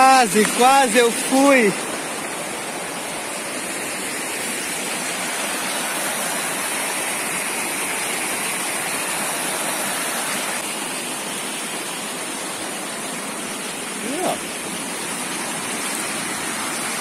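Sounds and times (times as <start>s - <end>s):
water rushing over rocks: 0.0s - 17.0s.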